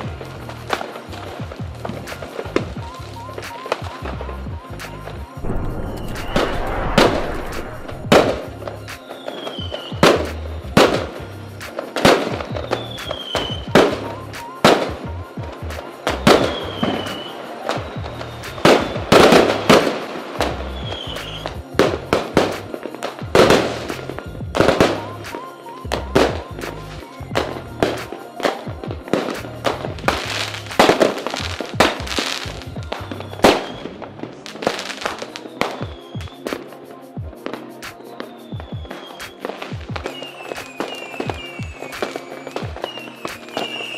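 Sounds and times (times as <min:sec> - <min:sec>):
background music with bass line: 0:00.0 - 0:34.0
fireworks bursting with sharp bangs: 0:00.0 - 0:43.9.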